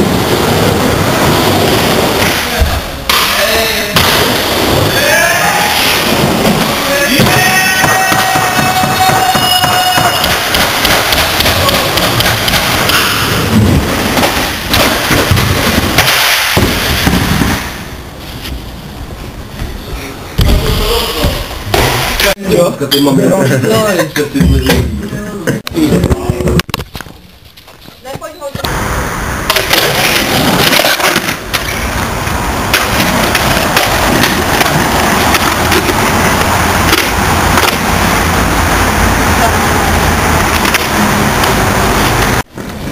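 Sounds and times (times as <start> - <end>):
skateboard wheels rolling on concrete: 0.0 - 22.4, 23.4 - 42.9
skateboard clacks and knocks: 5.8 - 17.3, 29.5 - 32.1, 32.7 - 38.0.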